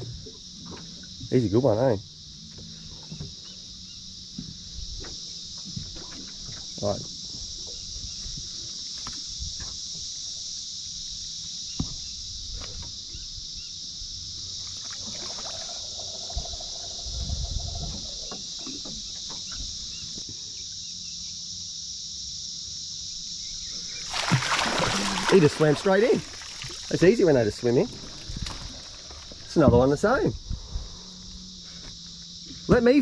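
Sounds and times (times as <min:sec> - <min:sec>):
high-pitched insect chorus: 0:00.0 - 0:33.0
fish thrashing and splashing: 0:24.0 - 0:27.1, 0:27.8 - 0:29.4.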